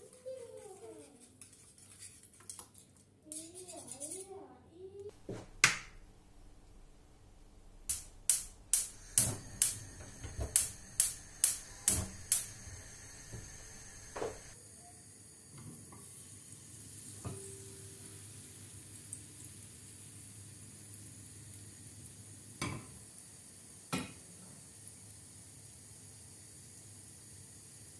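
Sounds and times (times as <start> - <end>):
batter sizzling in a pan: 7.6 - 27.9
gas igniter clicking: 7.7 - 14.6.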